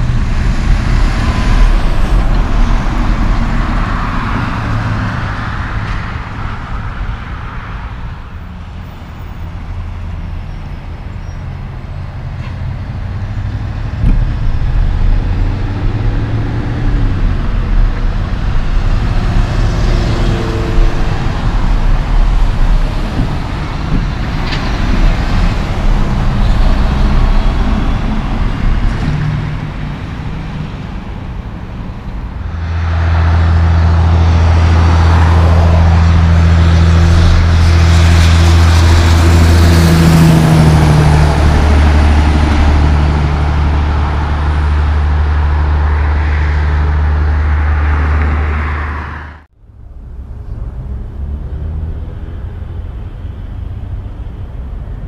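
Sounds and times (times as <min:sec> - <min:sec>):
loud steady engine hum: 0:00.0 - 0:55.0
trucks passing on highway: 0:00.0 - 0:55.0.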